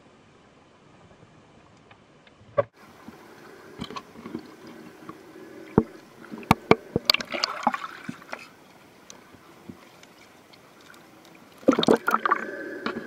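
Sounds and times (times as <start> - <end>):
underwater bubbling: 2.7 - 13.0
knocks and clicks underwater: 3.8 - 8.5, 11.6 - 13.0.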